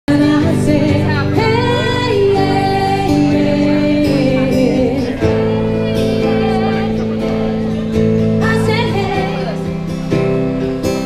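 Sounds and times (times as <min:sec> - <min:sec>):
woman singing into a microphone: 0:00.1 - 0:10.0
acoustic guitar: 0:00.1 - 0:11.0.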